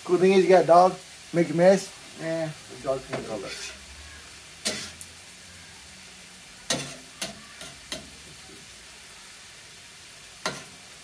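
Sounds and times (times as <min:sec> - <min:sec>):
food sizzling on a griddle: 0:00.0 - 0:11.0
metal spatula scraping griddle: 0:03.1 - 0:03.8, 0:04.6 - 0:05.0, 0:06.7 - 0:08.2, 0:10.4 - 0:10.9.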